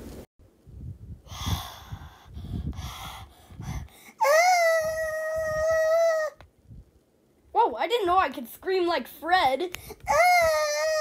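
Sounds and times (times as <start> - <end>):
person screaming high-pitched: 10.1 - 11.0.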